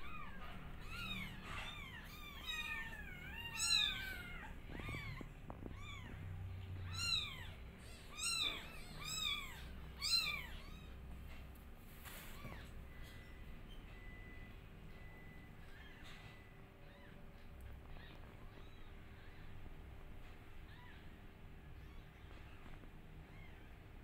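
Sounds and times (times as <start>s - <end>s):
newborn kittens meowing: 0.0s - 11.4s, 12.0s - 24.0s.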